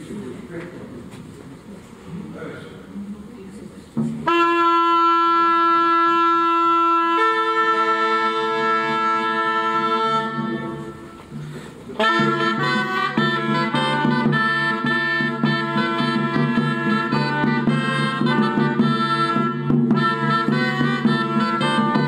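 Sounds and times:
shawms playing long notes: 4.2 - 22.0.

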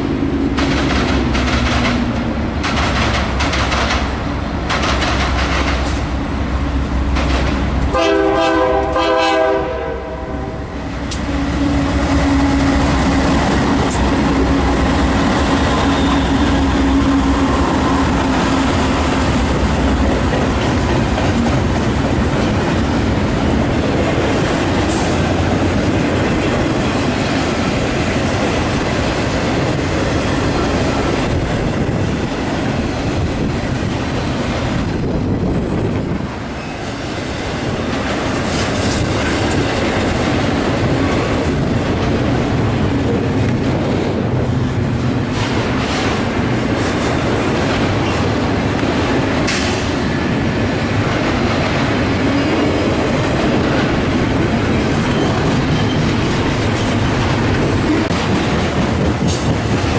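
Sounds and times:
freight cars clacking on rails: 0.0 - 9.6, 10.8 - 59.9
diesel locomotive engines: 0.0 - 59.9
train horn: 7.9 - 12.8.

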